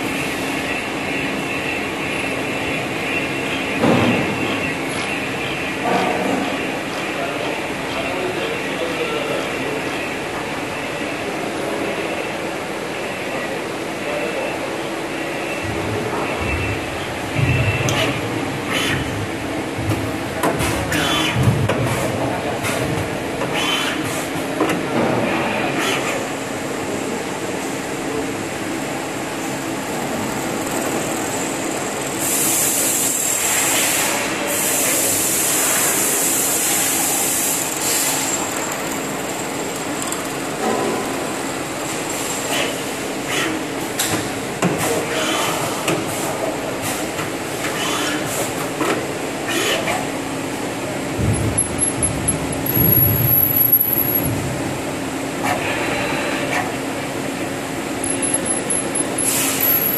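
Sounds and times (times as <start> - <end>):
milling machine running: 28.5 - 33.8, 35.0 - 42.9, 50.8 - 54.9, 57.3 - 59.9.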